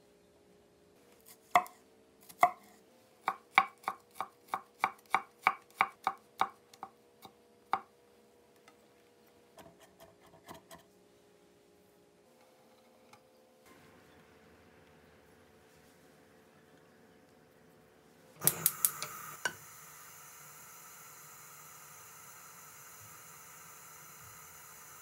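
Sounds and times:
knife chopping on cutting board: 1.5 - 6.6.

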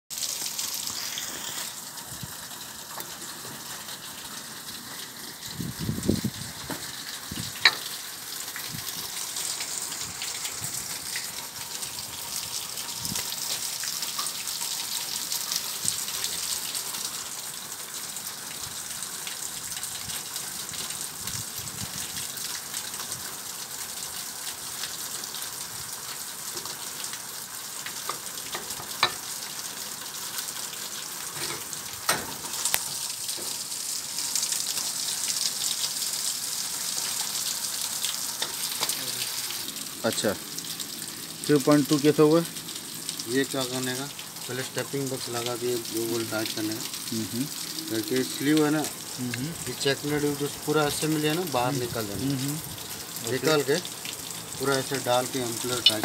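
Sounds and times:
steady hissing: 0.4 - 2.2.

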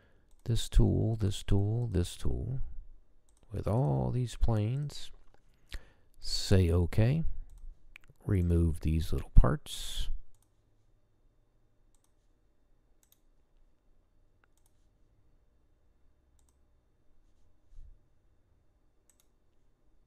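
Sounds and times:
faint computer mouse clicks: 10.3 - 10.6, 11.9 - 12.3, 13.0 - 13.3, 14.4 - 14.8, 16.4 - 16.6, 19.1 - 19.4.

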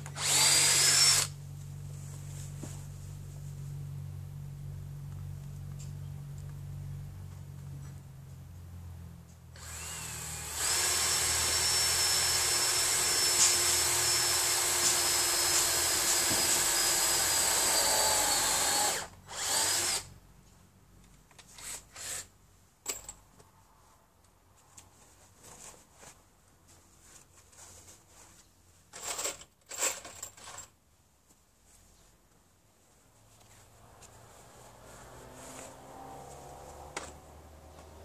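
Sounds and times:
cordless drill whine: 0.0 - 1.4, 9.6 - 20.1.

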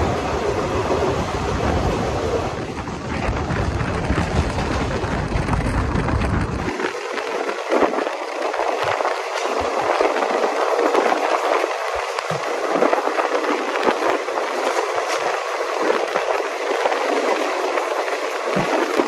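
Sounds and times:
deep rumble: 0.0 - 15.2
train wind and wheel noise: 0.0 - 19.0.

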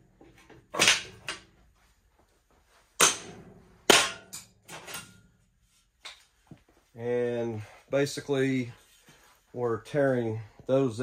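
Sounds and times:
sharp metal bangs and clatter: 3.0 - 5.3.

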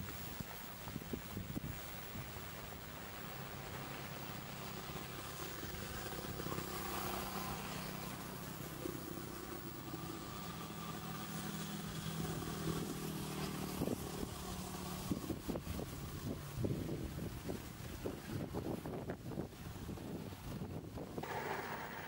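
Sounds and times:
engine humming: 21.2 - 22.0.

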